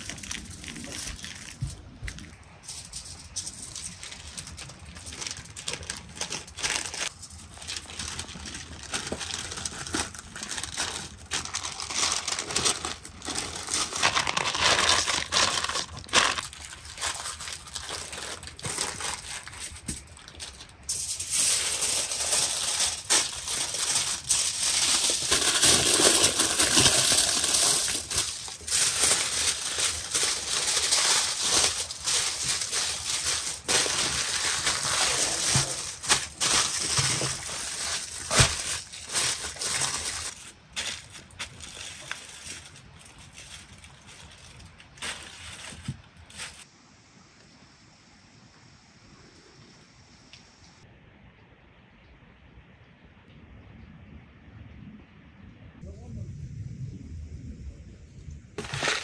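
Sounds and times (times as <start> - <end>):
aluminium foil crinkling: 0.0 - 46.7, 58.6 - 59.0
baking paper rustling and crinkling: 0.0 - 46.7, 58.6 - 59.0.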